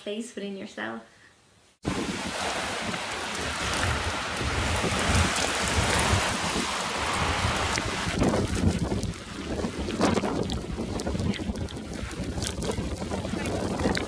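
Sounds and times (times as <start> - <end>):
rain: 1.8 - 14.0
storm wind: 1.8 - 14.0
wind buffeting microphone: 1.8 - 14.0.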